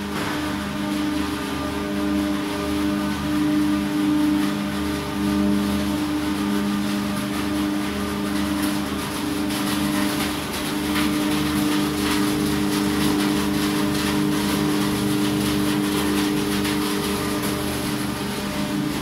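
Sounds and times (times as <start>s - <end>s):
machine hum with droning tones: 0.0s - 19.0s.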